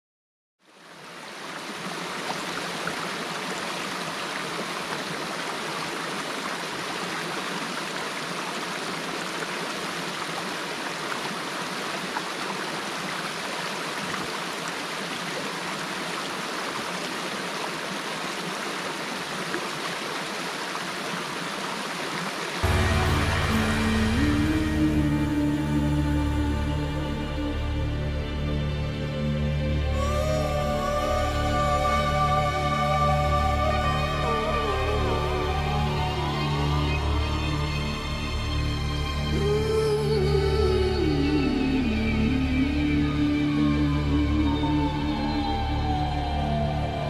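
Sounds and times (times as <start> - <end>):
stream rushing: 0.6 - 27.6.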